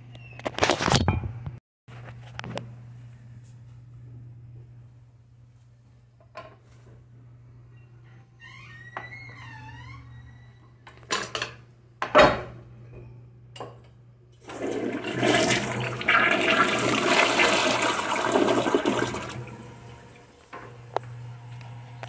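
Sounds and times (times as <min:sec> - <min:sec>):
toilet flushing: 0:14.4 - 0:20.8.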